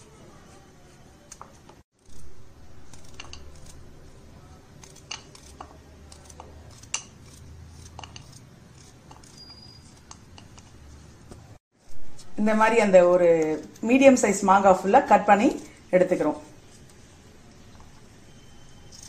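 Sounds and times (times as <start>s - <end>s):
knife cutting firm fruit: 1.4s - 10.6s.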